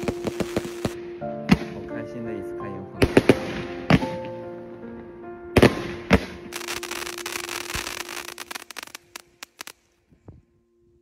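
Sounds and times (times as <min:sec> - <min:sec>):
fireworks crackling: 0:00.0 - 0:01.0, 0:05.6 - 0:10.0
fireworks bangs: 0:00.0 - 0:01.7, 0:03.0 - 0:04.2, 0:05.6 - 0:09.8
background music: 0:00.0 - 0:11.0.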